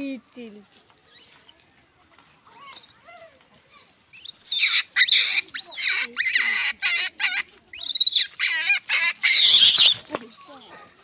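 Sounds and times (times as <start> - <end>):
monkey shrieking: 4.1 - 10.1.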